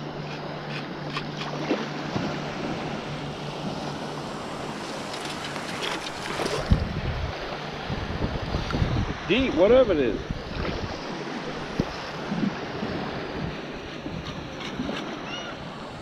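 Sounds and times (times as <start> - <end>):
water sloshing around legs: 0.0 - 6.9.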